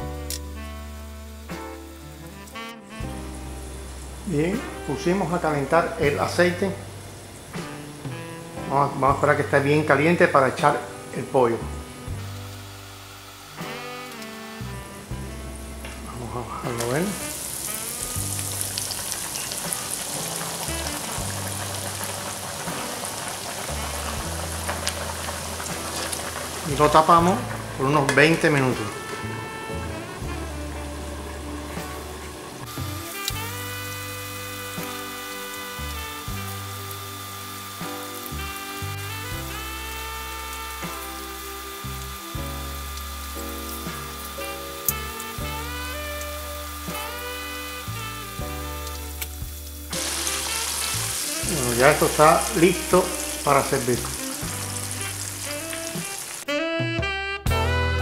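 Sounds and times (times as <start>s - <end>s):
chicken deep-frying in oil: 0.0s - 56.6s
background music of held notes: 0.0s - 58.0s
oil popping: 2.2s - 56.6s.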